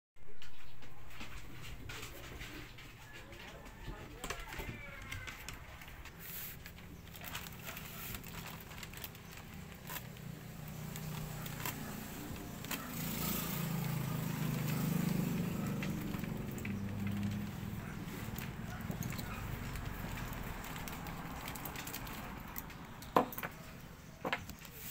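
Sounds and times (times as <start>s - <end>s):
plastic mailer bag crinkling: 4.2s - 23.7s.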